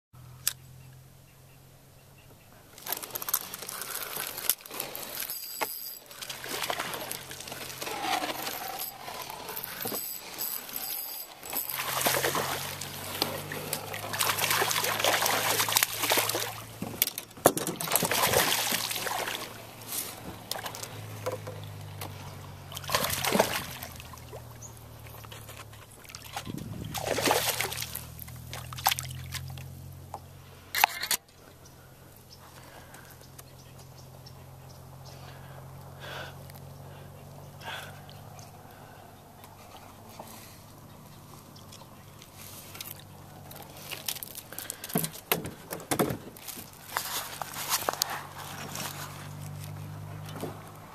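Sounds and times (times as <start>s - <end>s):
water splashing and sloshing: 2.8s - 29.9s, 37.8s - 50.9s.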